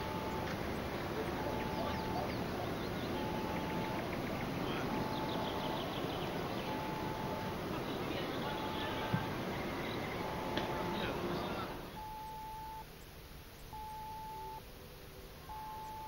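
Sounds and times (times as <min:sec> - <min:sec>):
faint bird chirps: 0:00.0 - 0:14.6, 0:15.4 - 0:16.0
steady outdoor hiss: 0:00.0 - 0:16.0
faint short tone: 0:13.8 - 0:14.6, 0:15.4 - 0:16.0.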